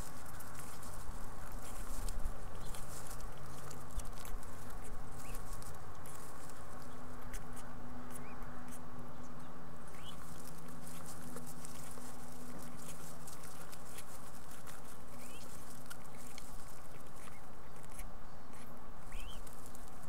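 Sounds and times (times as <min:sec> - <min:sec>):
birds rustling in nest: 0:00.0 - 0:08.4, 0:09.8 - 0:20.0
faint steady hum: 0:00.0 - 0:20.0.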